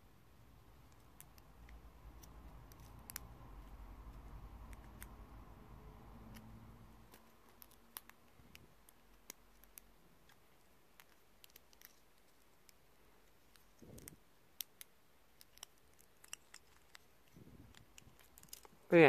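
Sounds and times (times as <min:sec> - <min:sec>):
small clicks of toy parts: 0:07.1 - 0:18.8.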